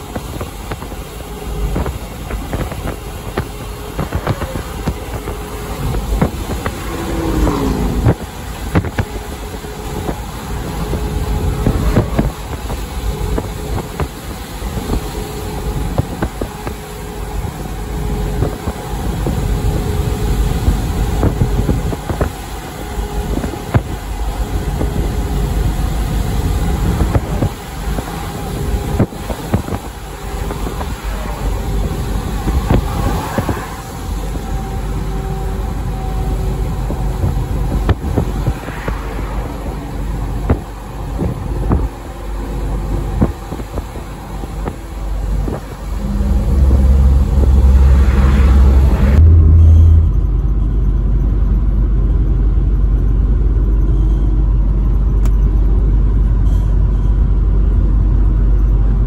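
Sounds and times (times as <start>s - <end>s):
vehicle road and wind noise: 0.0s - 59.0s
short falling tone: 45.8s - 51.4s.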